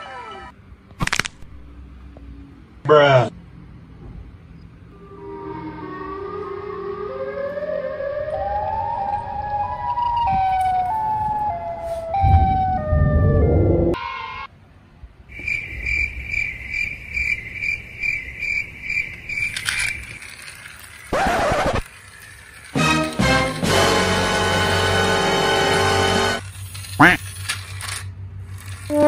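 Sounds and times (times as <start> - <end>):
electronic siren wailing: 4.9 - 14.5.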